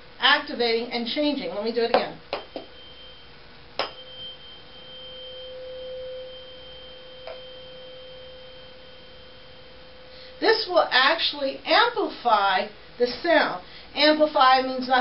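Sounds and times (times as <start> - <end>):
tuning fork struck: 1.9 - 12.0
tuning fork ringing tone: 2.2 - 12.0.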